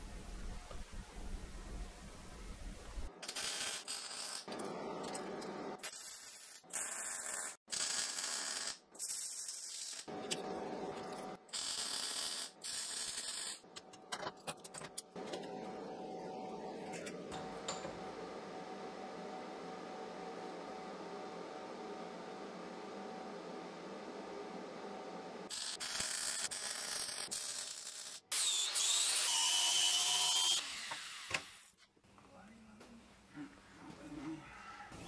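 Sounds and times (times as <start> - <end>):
welding crackling and hissing: 25.5 - 28.9.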